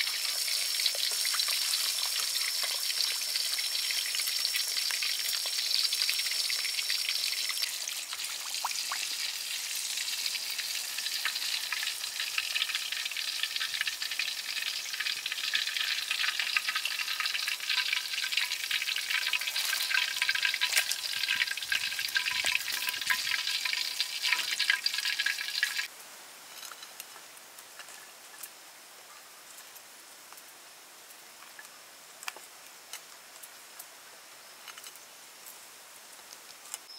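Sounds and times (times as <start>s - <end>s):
fish deep-frying in hot oil: 0.0s - 25.9s.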